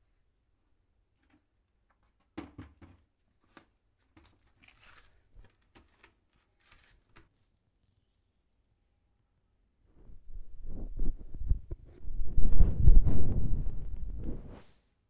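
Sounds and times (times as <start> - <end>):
cat scratching dry soil: 3.2 - 7.4.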